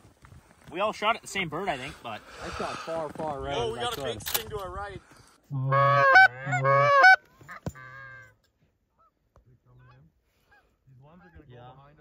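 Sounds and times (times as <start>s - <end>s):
goose honking: 5.5s - 8.3s.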